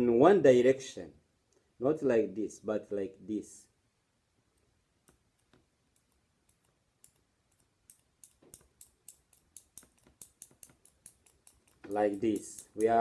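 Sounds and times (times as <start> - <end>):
magnet scraping along a metal spoon: 5.9 - 13.0.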